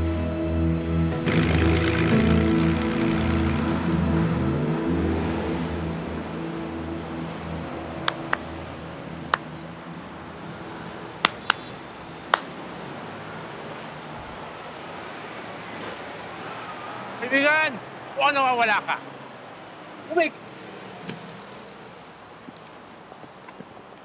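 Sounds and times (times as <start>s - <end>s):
street background noise: 0.0s - 24.0s
person clapping hands: 12.3s - 12.5s.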